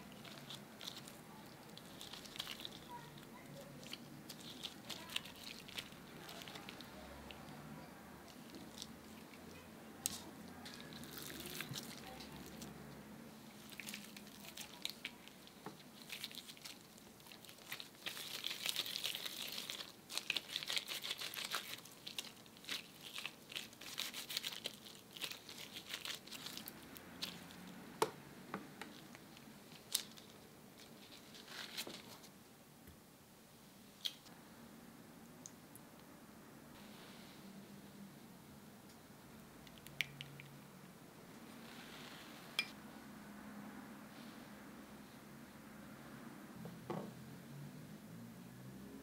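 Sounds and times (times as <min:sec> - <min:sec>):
gloves crinkling: 0:00.0 - 0:07.6, 0:08.2 - 0:12.7, 0:13.5 - 0:27.8, 0:28.8 - 0:32.4
soft squishing: 0:00.0 - 0:32.4.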